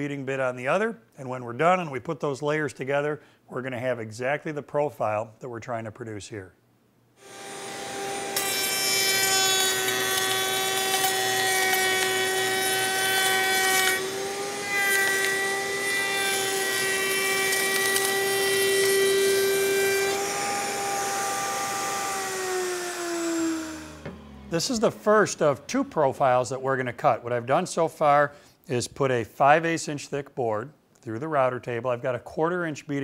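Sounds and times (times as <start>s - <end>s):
router motor whine: 7.2s - 25.2s
rough wood cutting noise: 7.2s - 26.1s.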